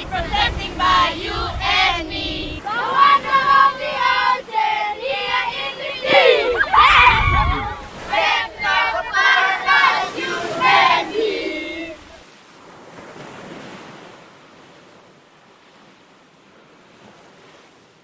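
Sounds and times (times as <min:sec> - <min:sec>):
ocean surf: 0:00.0 - 0:18.0
children shouting: 0:02.6 - 0:12.2.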